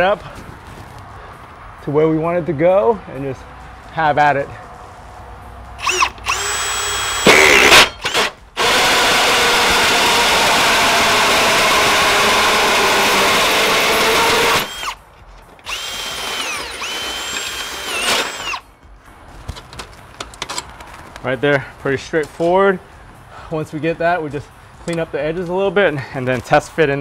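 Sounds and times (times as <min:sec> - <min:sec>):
drill spinning whine: 0:05.8 - 0:15.0, 0:15.6 - 0:18.6
hole saw cutting metal: 0:05.8 - 0:15.0, 0:15.6 - 0:18.6.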